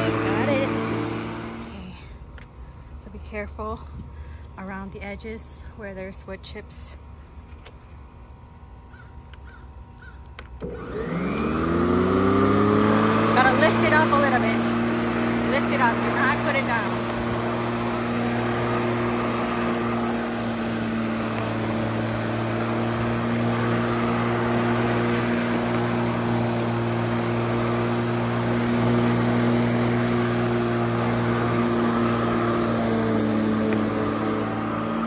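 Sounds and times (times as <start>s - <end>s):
lawnmower motor hum: 0.0s - 2.2s, 10.4s - 35.0s
blade whirring: 10.6s - 35.0s.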